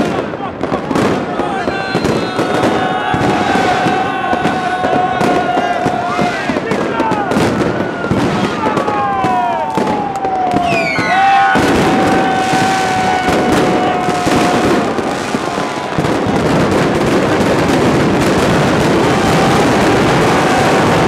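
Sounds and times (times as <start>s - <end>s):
fireworks crackling and popping: 0.0s - 21.0s
firework whistles: 1.5s - 6.6s, 9.7s - 21.0s.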